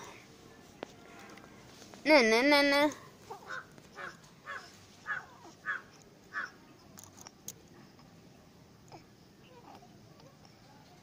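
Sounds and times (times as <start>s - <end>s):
crow cawing: 3.4s - 6.5s.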